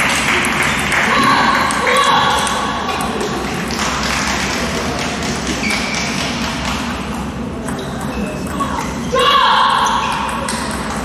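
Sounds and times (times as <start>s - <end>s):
table tennis hall background noise: 0.0s - 11.0s.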